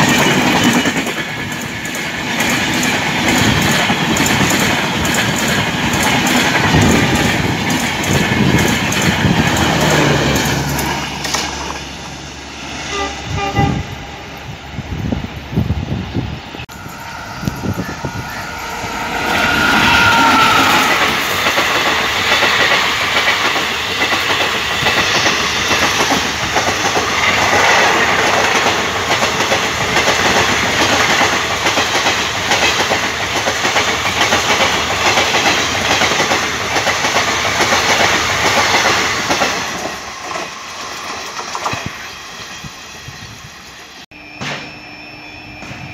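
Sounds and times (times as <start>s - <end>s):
train wheels clattering over rail joints: 0.0s - 12.0s, 19.5s - 42.7s
falling whine: 16.4s - 22.6s.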